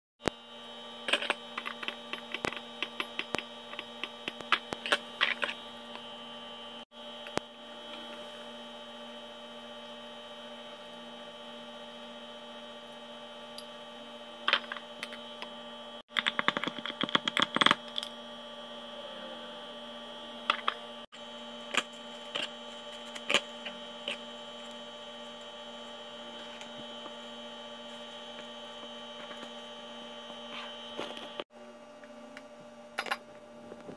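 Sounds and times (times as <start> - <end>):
steady electrical hum: 0.2 - 33.9.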